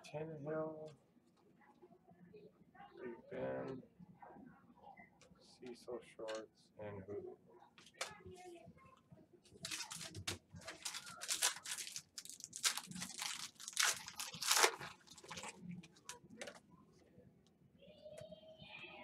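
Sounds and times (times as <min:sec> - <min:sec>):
packaging crinkling: 0:09.6 - 0:16.6.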